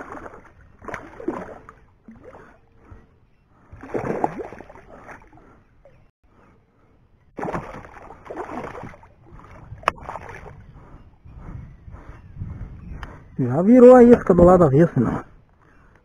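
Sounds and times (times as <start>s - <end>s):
fish splashing in water: 0.0s - 2.6s, 3.8s - 5.4s, 7.4s - 10.6s.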